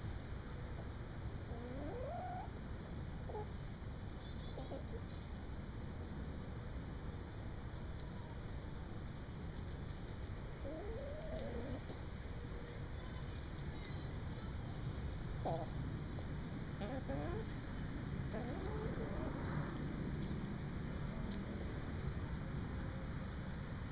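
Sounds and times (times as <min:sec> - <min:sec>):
low background noise: 0:00.0 - 0:23.9
hens calling: 0:15.4 - 0:15.8, 0:16.8 - 0:17.6, 0:18.2 - 0:19.5.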